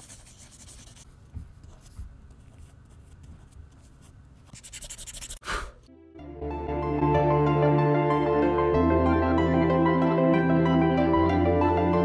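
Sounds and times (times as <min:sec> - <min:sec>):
pencil scratching on paper: 0:00.0 - 0:05.4.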